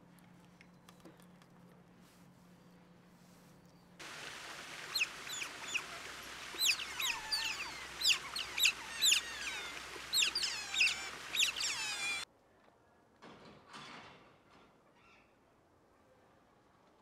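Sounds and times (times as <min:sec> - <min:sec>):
steady hiss: 0:04.0 - 0:12.2
high-pitched animal chirps: 0:04.8 - 0:12.2.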